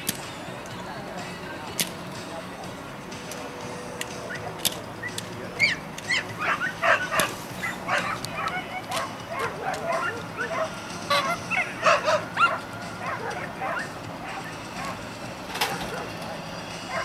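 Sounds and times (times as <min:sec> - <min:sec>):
dog whining and yelping: 0:05.6 - 0:15.0, 0:15.6 - 0:17.0.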